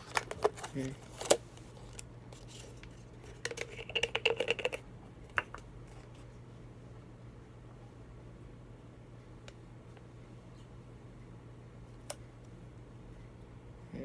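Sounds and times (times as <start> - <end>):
plastic cups clicking and crinkling: 0.0 - 6.1
plastic cup tap: 3.4 - 4.8.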